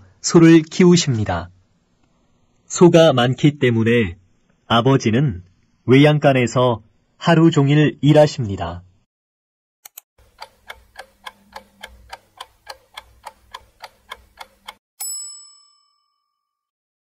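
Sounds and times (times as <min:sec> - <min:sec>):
clock ticking: 0:09.9 - 0:14.8
bell ding: 0:15.0 - 0:16.7.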